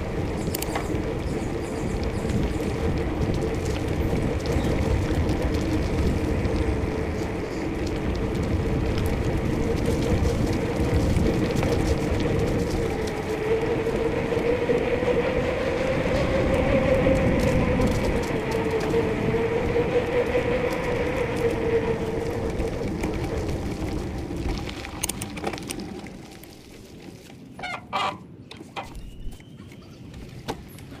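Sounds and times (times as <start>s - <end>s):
bicycle tyres humming on tarmac: 0.0s - 31.0s
bird chirps: 28.8s - 30.3s.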